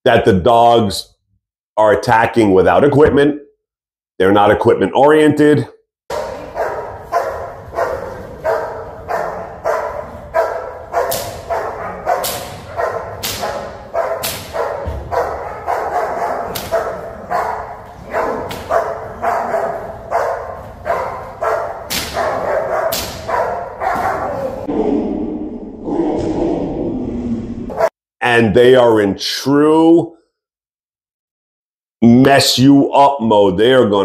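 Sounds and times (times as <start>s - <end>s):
dog barking: 6.1s - 24.7s, 27.7s - 27.9s.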